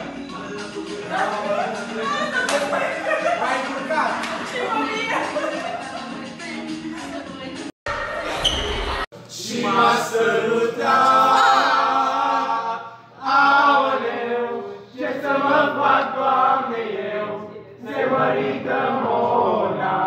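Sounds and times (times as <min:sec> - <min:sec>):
voices singing unaccompanied: 0:09.2 - 0:20.0.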